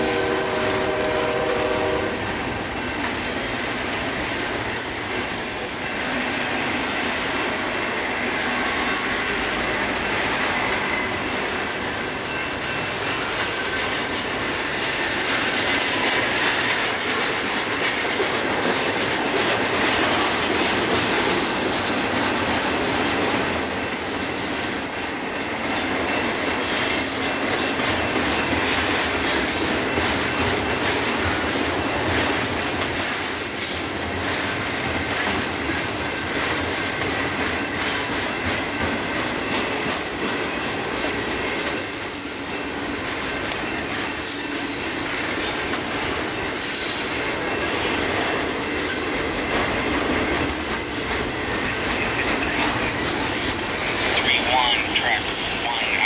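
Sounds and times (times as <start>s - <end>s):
train wheels rumbling on rail: 0.0s - 56.0s
high-pitched wheel squeal: 6.8s - 7.7s.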